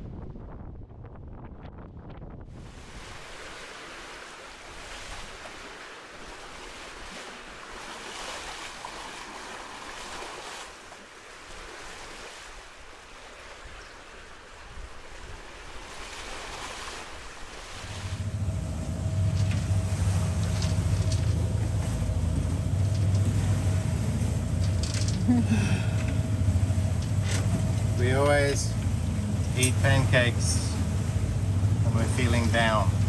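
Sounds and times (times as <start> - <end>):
wind on microphone: 0.0 - 3.5
water rushing along a hull: 2.5 - 33.0.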